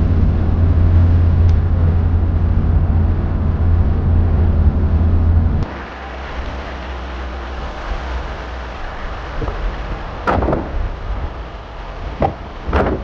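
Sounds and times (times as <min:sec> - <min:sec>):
car engine and tyre rumble: 0:00.0 - 0:13.0
open-air noise: 0:00.0 - 0:13.0.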